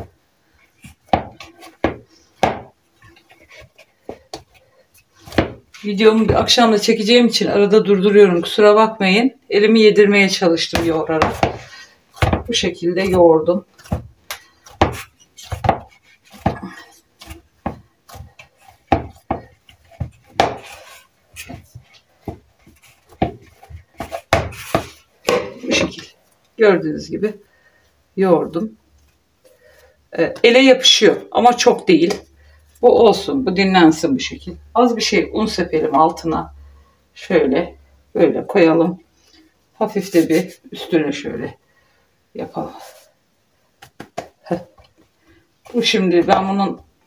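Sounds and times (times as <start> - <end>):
hands kneading dough: 0.0 - 7.2, 10.0 - 27.4, 42.4 - 47.0.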